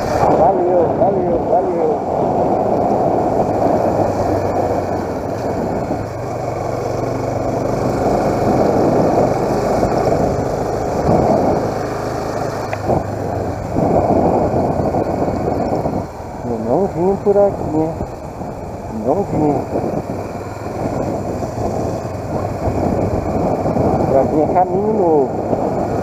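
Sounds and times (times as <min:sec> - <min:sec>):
motorcycle engine running: 0:00.0 - 0:26.0
wind noise on microphone: 0:00.0 - 0:26.0.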